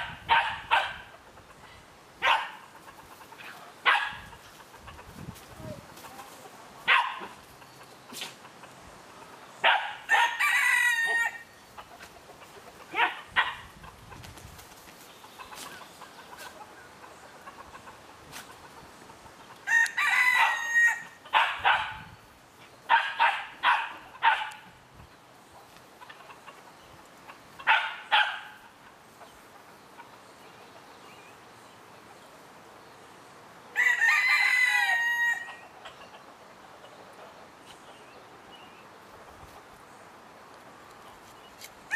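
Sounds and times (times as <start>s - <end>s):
chicken clucking: 1.1s - 9.6s, 11.6s - 14.3s, 15.0s - 19.7s, 25.6s - 31.0s, 35.4s - 39.7s
rooster crowing: 10.1s - 11.6s, 19.6s - 21.2s, 33.7s - 35.6s.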